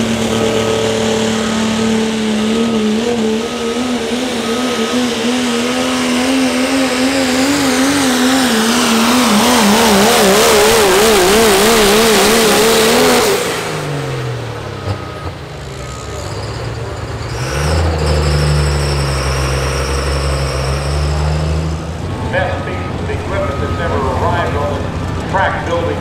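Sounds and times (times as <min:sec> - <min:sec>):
diesel truck engine at high revs: 0:00.0 - 0:26.0.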